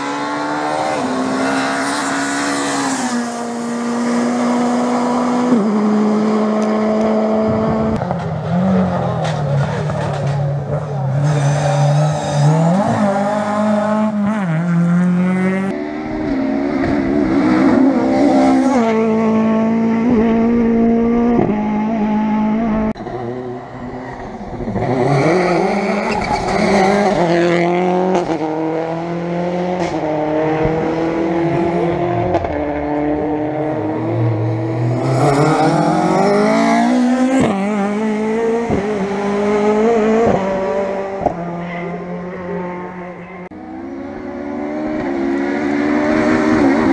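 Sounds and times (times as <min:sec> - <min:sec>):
cars passing by loudly: 0:00.0 - 0:46.9
rally car engines revving: 0:00.0 - 0:46.9.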